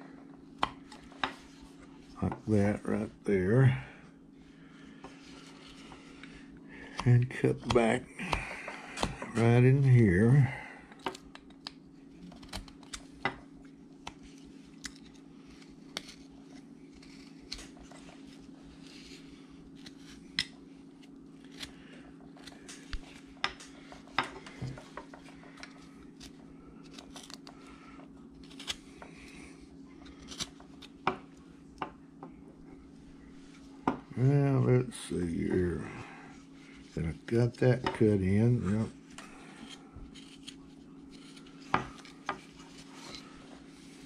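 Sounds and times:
faint low hum: 0:00.0 - 0:44.0
knife snicking wood: 0:39.5 - 0:42.4.

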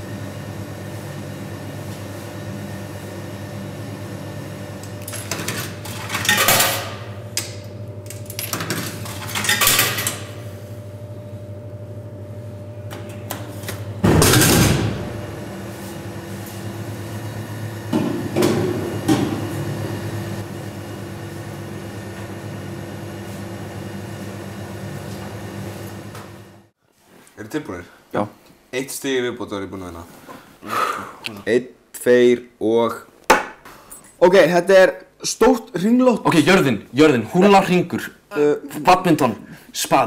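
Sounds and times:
vending machine hum: 0:00.0 - 0:26.8.

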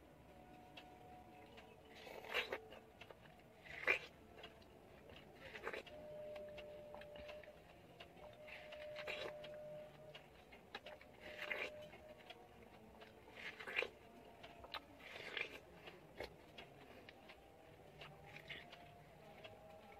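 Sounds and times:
biting and chewing watermelon: 0:00.0 - 0:19.9
faint clicking: 0:00.4 - 0:11.1.

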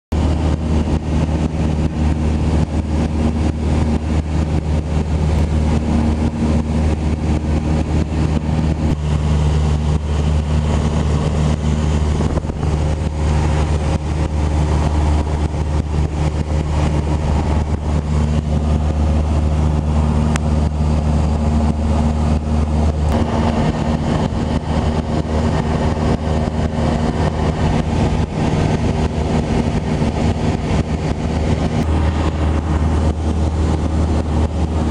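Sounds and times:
propeller plane engine droning: 0:00.1 - 0:34.9.

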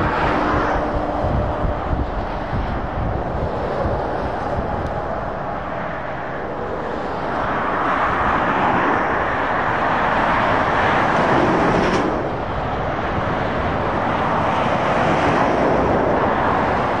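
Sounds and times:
motorway traffic passing: 0:00.0 - 0:17.0.

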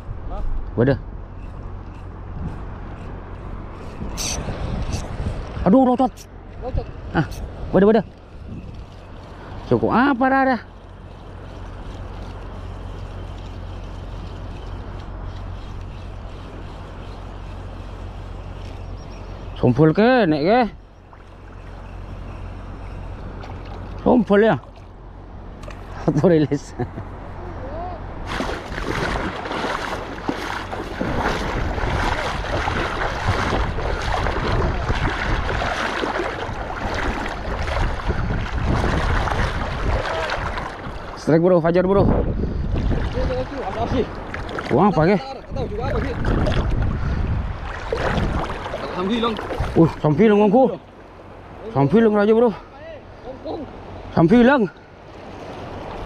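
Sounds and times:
wind rumbling on microphone: 0:00.0 - 0:50.5
seawater sloshing and lapping: 0:07.6 - 0:19.6, 0:21.0 - 0:26.0, 0:28.2 - 0:41.3, 0:42.6 - 0:51.4.

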